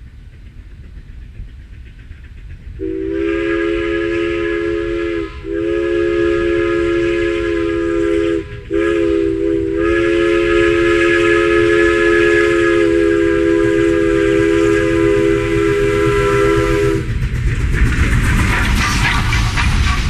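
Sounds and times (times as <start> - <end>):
train rumble and clatter: 0.0 - 20.0
steam locomotive chime whistle: 2.8 - 17.1.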